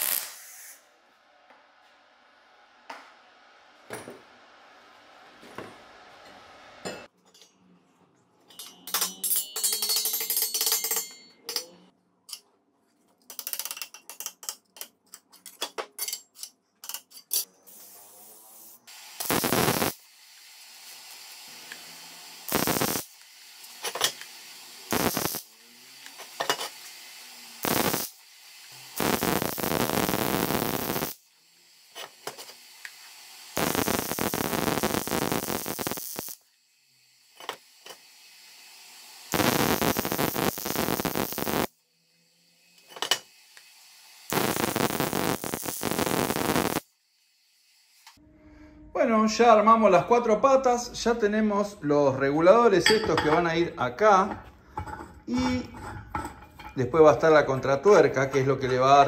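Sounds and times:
crackling hissing welding: 0.0s - 0.9s, 17.3s - 48.2s
steel parts clinking: 8.4s - 12.5s, 13.2s - 17.5s.

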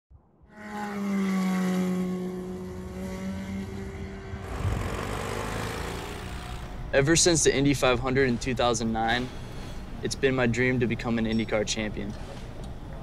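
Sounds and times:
race car engine: 0.5s - 7.4s
low noisy rumble: 2.3s - 13.0s.

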